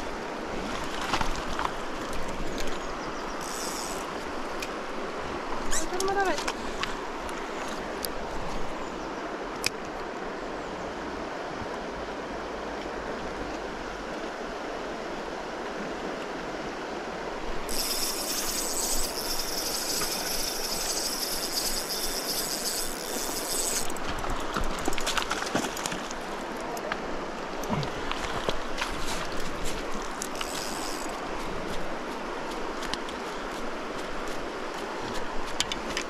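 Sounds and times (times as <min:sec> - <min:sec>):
stony river flowing: 0:00.0 - 0:36.0
fishing reel whirring: 0:03.4 - 0:04.2, 0:17.7 - 0:25.0, 0:30.2 - 0:31.2.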